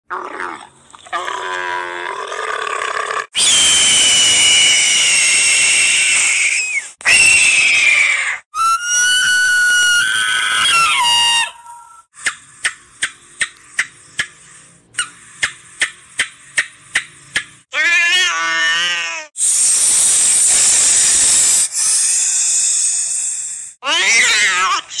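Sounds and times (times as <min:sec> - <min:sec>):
camel gurgling groan: 0:00.1 - 0:03.3
shrill screaming animal calls: 0:03.3 - 0:12.1, 0:17.7 - 0:19.6
whistle-like animal calls: 0:03.4 - 0:12.8.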